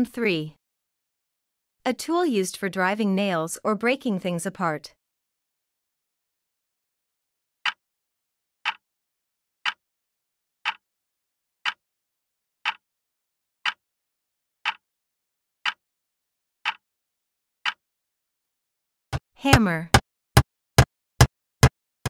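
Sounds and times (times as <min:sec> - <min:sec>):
timer ticking: 0:10.6 - 0:10.8, 0:12.6 - 0:12.8, 0:14.6 - 0:14.8, 0:16.6 - 0:16.8.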